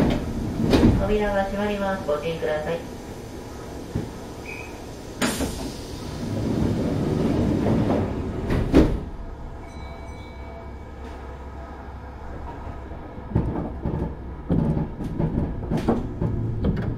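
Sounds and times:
sliding doors rumbling: 0.0s - 9.6s, 10.6s - 16.9s
train hum with whining tones: 0.0s - 16.9s
train doors hissing: 2.3s - 9.2s.

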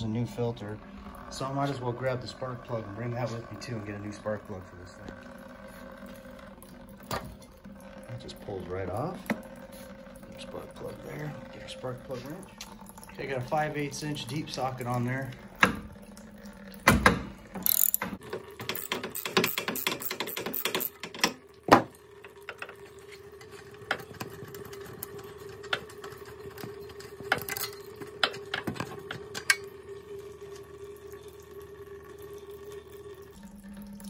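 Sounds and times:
faint steady hum: 0.0s - 18.5s, 21.3s - 34.0s
ratchet wrench clicking: 17.6s - 18.1s.

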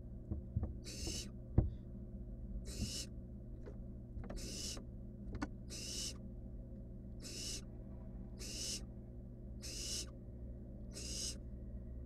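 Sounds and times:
owl chicks hissing: 0.8s - 1.3s, 2.7s - 3.1s, 4.4s - 4.8s, 5.7s - 6.2s, 7.2s - 7.7s, 8.3s - 8.9s, 9.6s - 10.2s, 10.9s - 11.4s.

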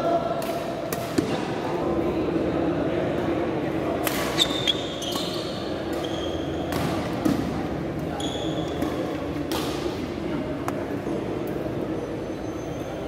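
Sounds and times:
murmur of spectators: 0.0s - 13.0s
shoes squeaking on floor: 4.4s - 6.7s, 8.1s - 8.8s
racket hitting shuttlecock: 5.1s - 7.6s, 8.7s - 10.0s.

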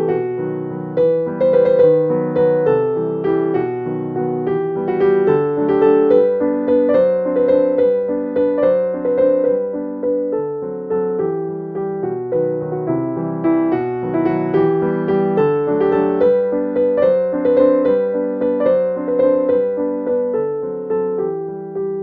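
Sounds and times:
gentle piano melody: 0.0s - 22.0s.

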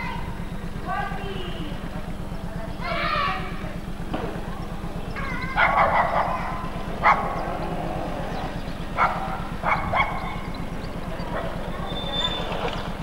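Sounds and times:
steady low buzz: 0.0s - 12.1s
dog barking: 5.2s - 7.6s, 9.0s - 10.5s, 11.2s - 12.3s.

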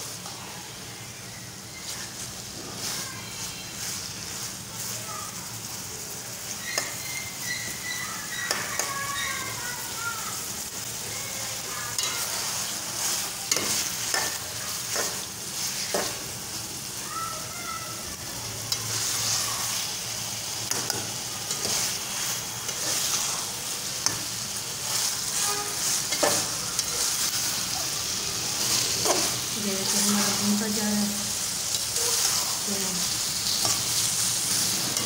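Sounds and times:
meat sizzling in oil: 0.0s - 35.0s
spoon scraping and knocking pot: 26.1s - 26.9s.

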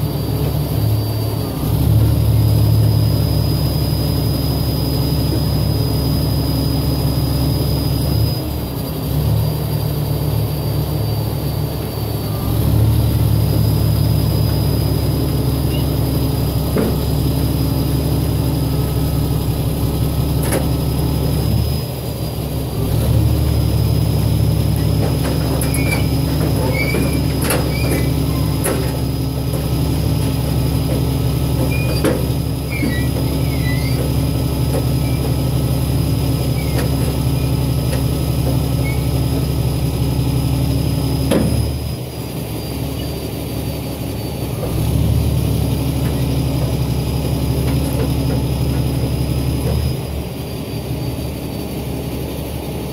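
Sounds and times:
diesel truck engine running: 0.0s - 52.9s
squeaks from sliding load: 13.6s - 19.2s, 24.6s - 40.2s, 40.9s - 44.7s, 45.6s - 51.7s
knocks from sliding load: 24.9s - 35.4s.

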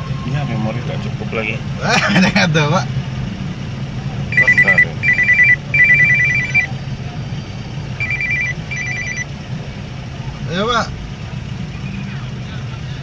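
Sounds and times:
car engine idling: 0.6s - 13.0s
phone ringtone trill: 4.3s - 6.7s, 8.0s - 9.2s.

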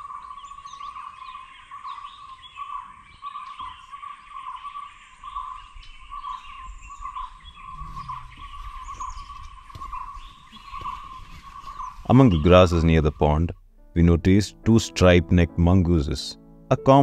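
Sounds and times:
birds chirping and calling: 0.0s - 13.5s.

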